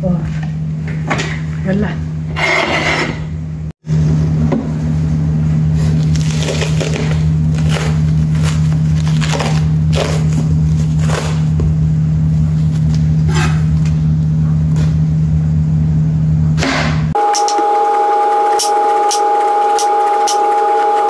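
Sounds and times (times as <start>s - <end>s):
steady low hum: 0.0s - 17.8s
plastic wrap crinkling: 5.8s - 11.5s.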